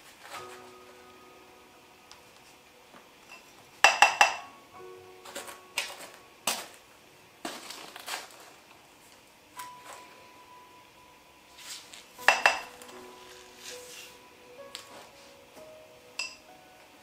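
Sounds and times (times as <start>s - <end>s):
soft background music: 0.0s - 17.0s
dishes and utensils clinking: 3.3s - 4.5s, 12.2s - 14.1s, 16.2s - 16.5s.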